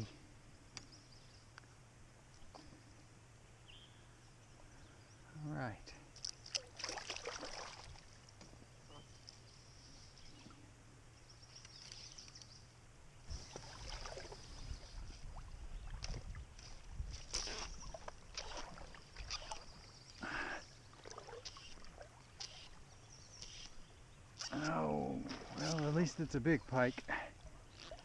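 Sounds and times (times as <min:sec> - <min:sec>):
oars splashing in water: 0:06.2 - 0:08.4, 0:13.3 - 0:23.7, 0:24.4 - 0:26.2, 0:27.7 - 0:28.0.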